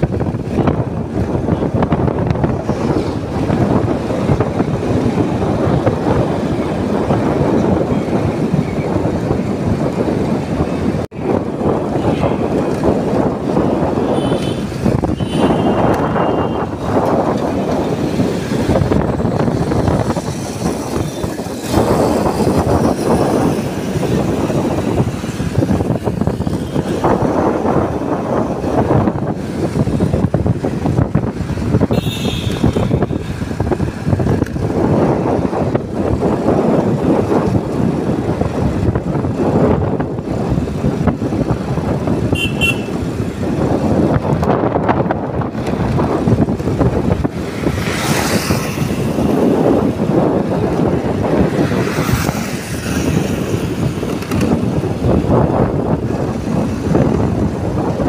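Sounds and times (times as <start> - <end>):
vehicles passing close by: 0.0 - 58.0
wind and road noise: 0.0 - 58.0
vehicle horn beeping: 14.0 - 16.8, 31.9 - 33.2, 42.3 - 43.0.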